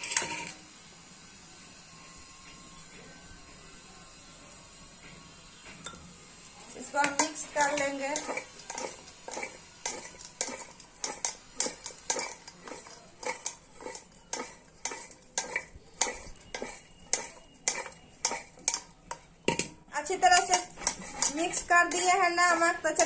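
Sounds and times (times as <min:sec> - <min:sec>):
metal bowl clanking: 0:00.0 - 0:00.6, 0:06.8 - 0:23.0.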